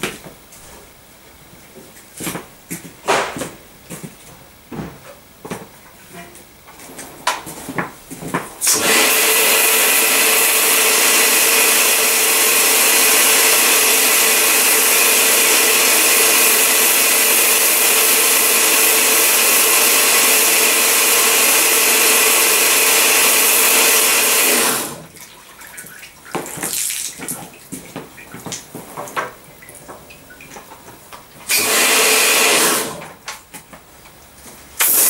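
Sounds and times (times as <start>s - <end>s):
faint machine hum: 0.0s - 8.7s, 25.0s - 31.5s
pressure washer spraying water: 8.6s - 25.0s, 31.5s - 33.0s, 34.8s - 35.0s.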